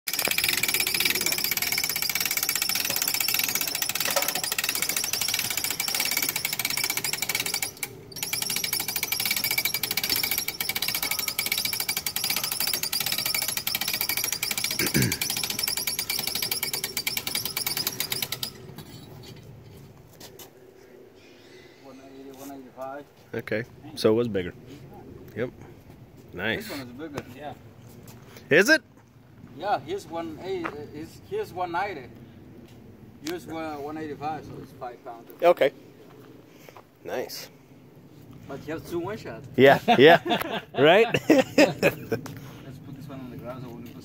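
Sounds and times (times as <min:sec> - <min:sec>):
power tool hammering clatter: 0:00.1 - 0:18.7.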